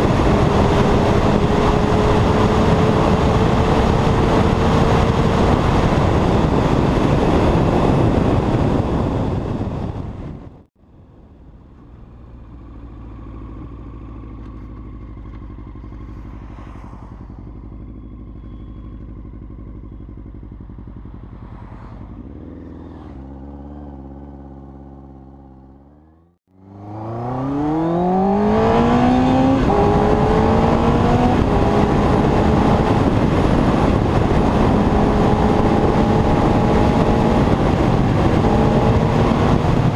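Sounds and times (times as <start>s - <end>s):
wind rush: 0.0s - 10.7s, 16.0s - 17.8s, 26.8s - 39.9s
motorcycle engine: 0.0s - 39.9s.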